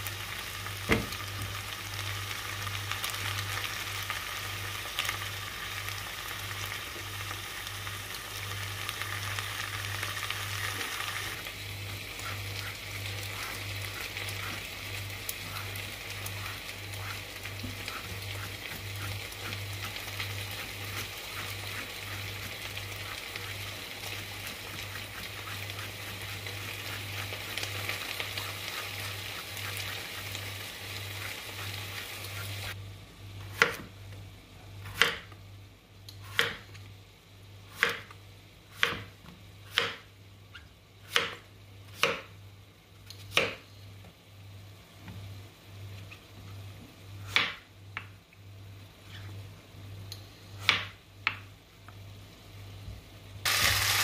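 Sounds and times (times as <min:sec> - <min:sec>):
vegetables sizzling in oil: 0:00.0 - 0:32.8, 0:53.4 - 0:54.0.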